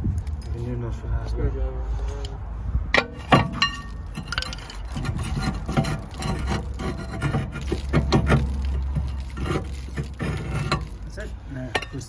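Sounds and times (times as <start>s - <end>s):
metal clanks and knocks: 2.9s - 11.0s, 11.7s - 12.0s
metal disc rubbing: 3.0s - 12.0s.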